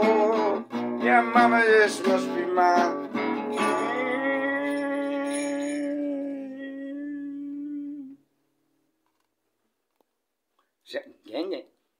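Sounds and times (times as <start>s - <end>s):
acoustic guitar: 0.0s - 8.2s
man singing long note: 3.6s - 8.2s.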